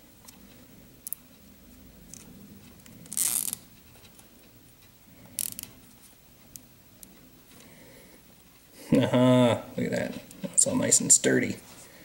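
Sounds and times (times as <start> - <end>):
zip tie ratcheting: 3.0 - 3.6, 5.4 - 5.7.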